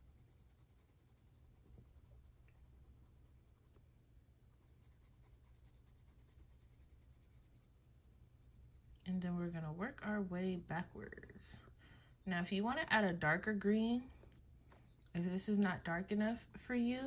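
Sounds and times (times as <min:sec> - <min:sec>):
pencil scratching on paper: 0:00.0 - 0:11.6
low steady hum: 0:00.0 - 0:17.0.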